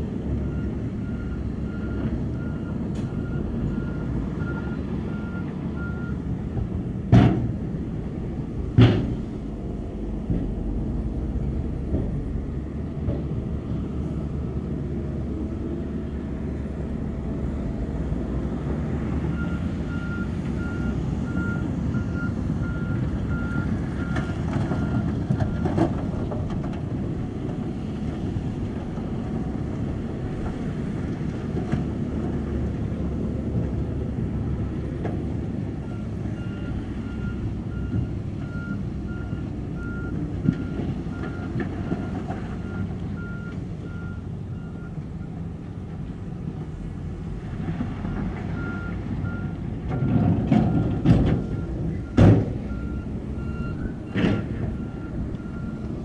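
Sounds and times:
diesel machinery engine running: 0.0 - 56.0
reversing alarm beeping: 0.4 - 6.2, 19.3 - 25.7, 48.6 - 55.9.

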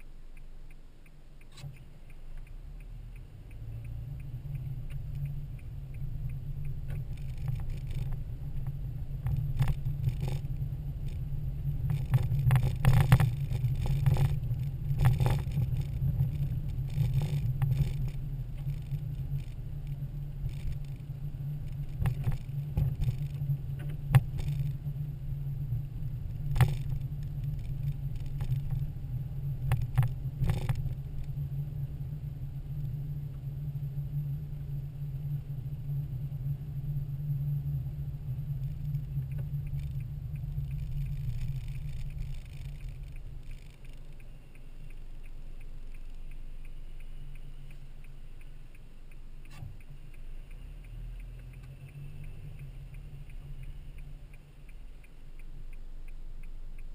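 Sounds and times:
car engine and tyre rumble: 0.0 - 56.9
sharp ticks and rattles: 0.0 - 56.9.

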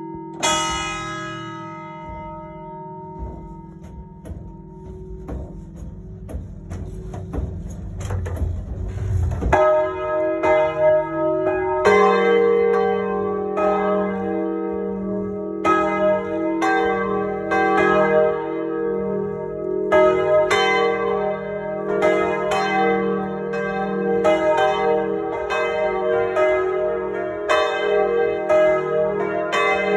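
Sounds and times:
church bells ringing: 0.0 - 29.9
low rumble: 6.6 - 9.7.

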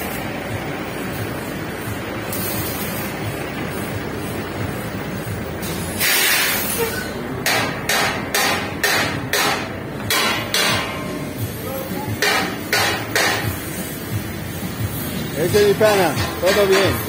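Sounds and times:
hammer striking steel: 5.6 - 13.8, 15.6 - 17.0.

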